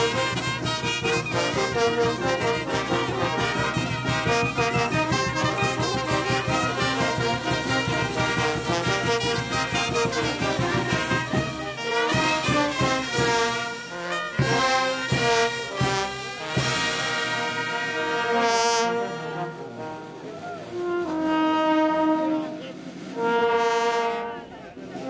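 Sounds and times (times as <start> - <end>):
bass drum and cymbals: 0.0 - 17.9
brass band playing: 0.0 - 25.0.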